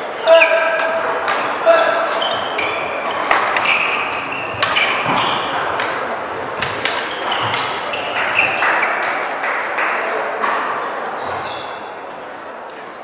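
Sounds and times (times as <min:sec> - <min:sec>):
sports hall noise: 0:00.0 - 0:13.0
shoes squeaking on court floor: 0:02.0 - 0:09.3, 0:11.1 - 0:11.9
racket striking shuttlecock: 0:03.1 - 0:06.0, 0:06.6 - 0:08.7.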